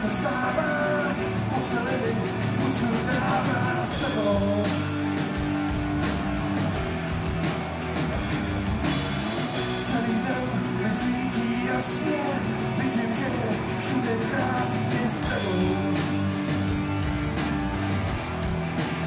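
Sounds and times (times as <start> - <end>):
man singing: 0.0 - 4.9, 9.5 - 16.4
bass guitar: 0.0 - 19.0
drum kit and cymbal hits: 0.0 - 19.0
electric guitars: 0.0 - 19.0.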